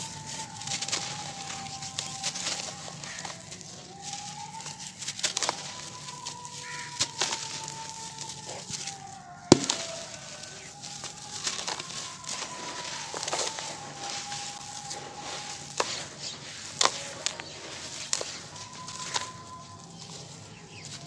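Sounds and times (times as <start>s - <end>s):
hands crushing dry cement: 0.0s - 21.0s
sharp crack: 9.5s - 10.3s.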